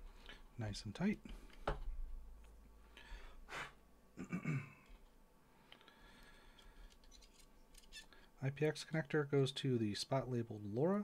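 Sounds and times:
electronic parts rustling: 6.2s - 8.2s.

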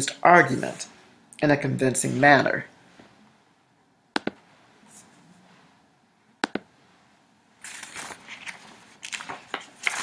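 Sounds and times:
computer mouse clicks: 4.2s - 4.4s, 6.4s - 6.7s.

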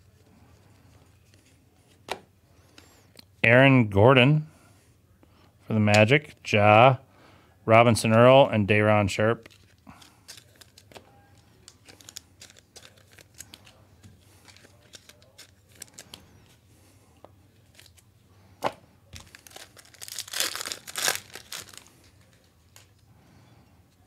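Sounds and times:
cards rustling and shuffling: 0.1s - 2.9s, 9.3s - 16.7s, 17.3s - 23.0s
foil pack tearing: 19.2s - 22.4s.

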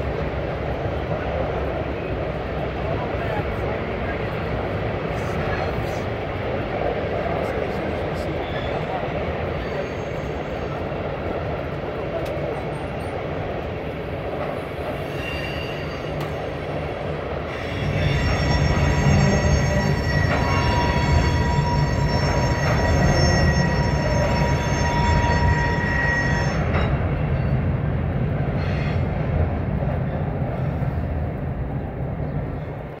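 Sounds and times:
train wheels rumbling on rail: 0.0s - 33.0s
high wheel squeal: 8.4s - 10.8s, 14.8s - 16.7s, 17.5s - 27.6s.

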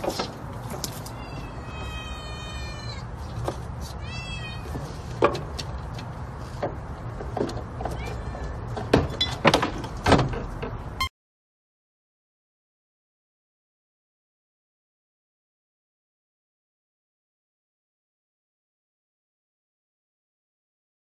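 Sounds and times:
cat meowing: 1.0s - 3.1s, 4.0s - 4.8s, 7.9s - 8.6s.

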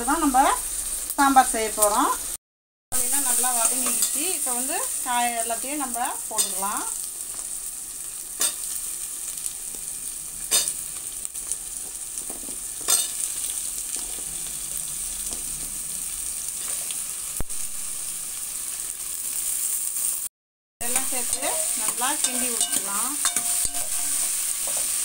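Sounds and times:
oil sizzling in a pot: 0.0s - 2.4s, 3.0s - 25.0s
vegetables clattering into pot: 20.8s - 25.0s.

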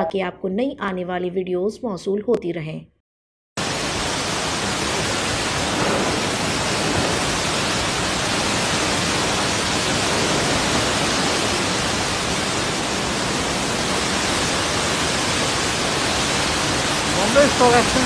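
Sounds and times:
heavy rain pouring: 3.6s - 18.0s.

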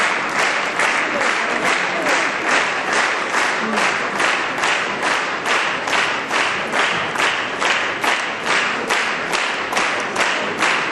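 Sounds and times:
audience clapping in rhythm: 0.0s - 10.9s.

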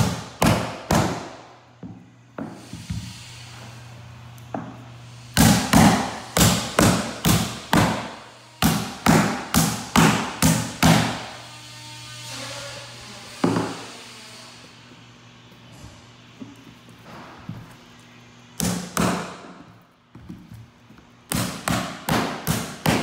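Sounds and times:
hammer striking nails: 0.0s - 1.4s, 5.4s - 11.3s, 21.3s - 23.0s.

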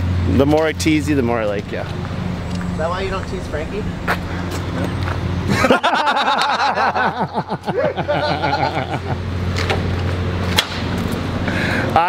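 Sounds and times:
hearty laughter: 5.4s - 9.3s.

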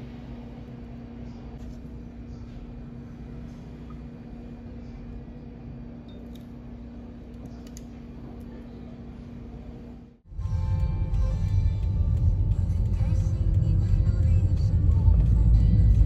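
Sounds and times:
low room hum: 0.0s - 16.0s.

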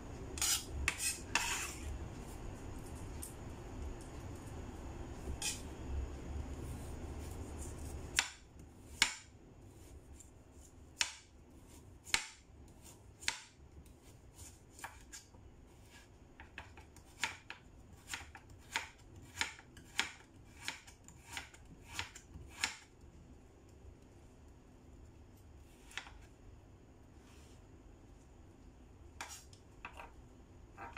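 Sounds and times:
knife chopping on cutting board: 7.6s - 9.3s, 12.0s - 13.6s, 14.4s - 15.2s, 15.8s - 22.9s, 25.8s - 26.3s, 29.2s - 30.1s.

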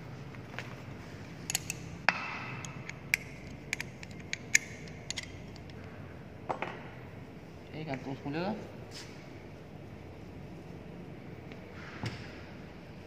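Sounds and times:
metallic clicks and clinks: 2.6s - 5.8s.

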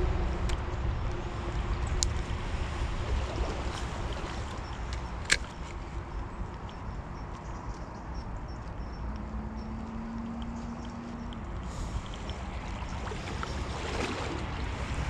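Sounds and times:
low rumbling wind noise: 0.0s - 15.0s.

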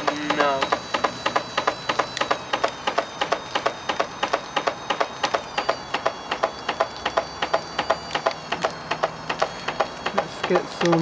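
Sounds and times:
washing machine drum clattering: 0.0s - 11.0s.

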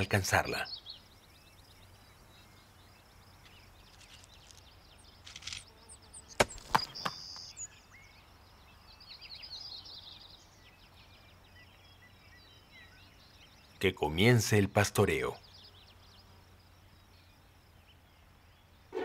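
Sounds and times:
hooves clattering on rock: 3.8s - 5.7s, 6.4s - 7.5s.

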